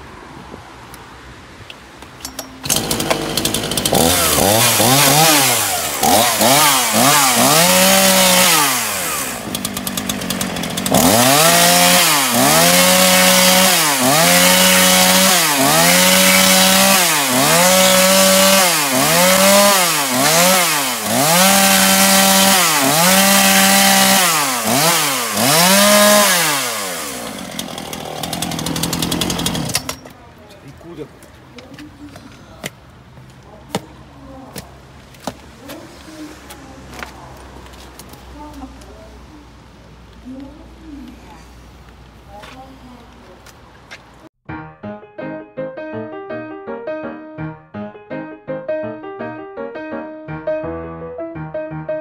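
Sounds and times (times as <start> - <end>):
chainsaw revving: 2.5 - 30.0.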